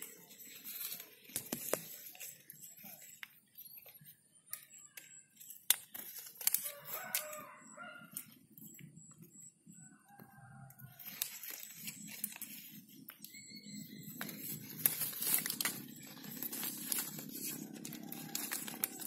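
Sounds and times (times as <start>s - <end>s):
leaves rustling: 0.0s - 3.9s, 4.5s - 8.2s, 10.8s - 19.0s
rooster crowing: 6.6s - 8.3s, 9.8s - 11.1s, 17.4s - 19.0s.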